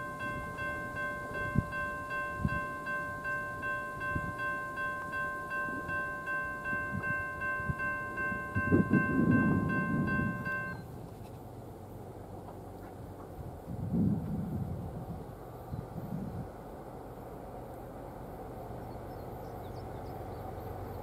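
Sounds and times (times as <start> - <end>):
crossing bell ringing: 0.0 - 10.9.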